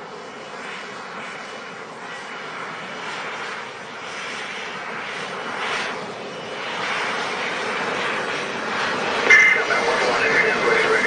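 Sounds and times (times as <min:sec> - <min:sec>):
jet engine rushing: 0:00.0 - 0:11.0.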